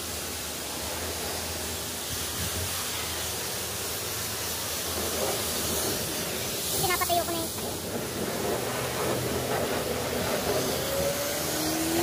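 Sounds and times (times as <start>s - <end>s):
pressure wand spraying water: 0.0s - 12.0s.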